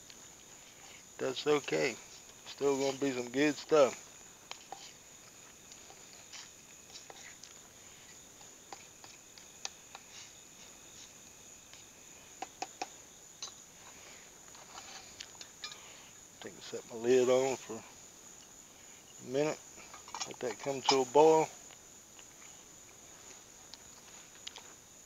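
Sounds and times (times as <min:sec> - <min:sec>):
night insects chirring: 0:00.0 - 0:25.0
metal clinks: 0:15.4 - 0:15.9.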